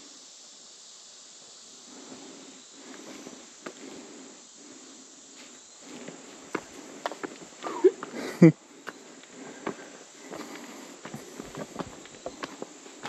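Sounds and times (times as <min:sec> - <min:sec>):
insect buzz: 0:00.0 - 0:13.0
footsteps on stone steps: 0:02.9 - 0:03.9, 0:05.4 - 0:13.0.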